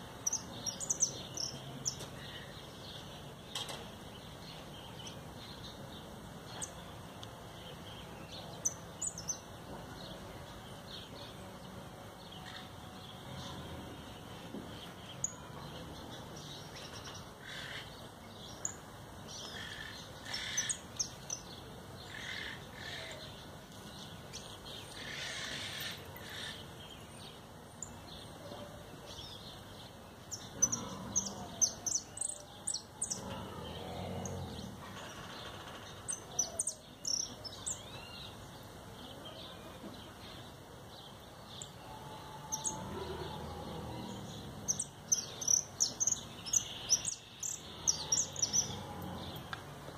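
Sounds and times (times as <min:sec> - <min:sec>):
finch chirping and twittering: 0:00.2 - 0:06.8, 0:07.6 - 0:11.4, 0:29.0 - 0:49.6.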